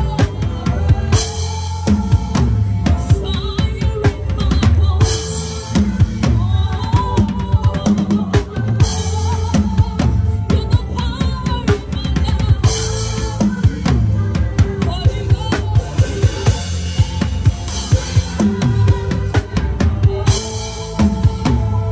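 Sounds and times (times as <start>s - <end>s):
bass drum: 0.0s - 21.9s.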